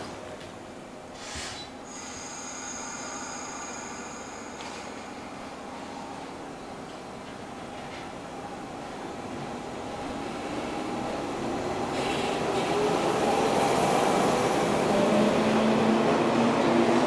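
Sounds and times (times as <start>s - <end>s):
electric train rolling past: 1.0s - 17.0s.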